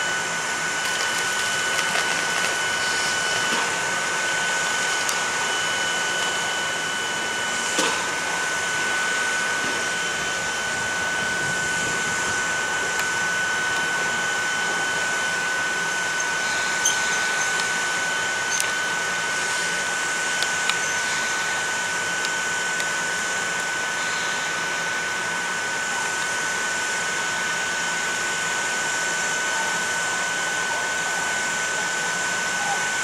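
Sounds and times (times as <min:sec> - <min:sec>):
constant high whine: 0:00.0 - 0:33.0
rushing blower noise: 0:00.0 - 0:33.0.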